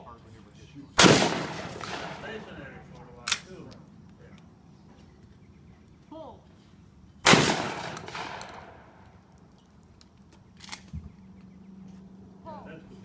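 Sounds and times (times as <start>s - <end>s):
shotgun shot with echo: 1.0s - 2.5s, 7.2s - 8.9s.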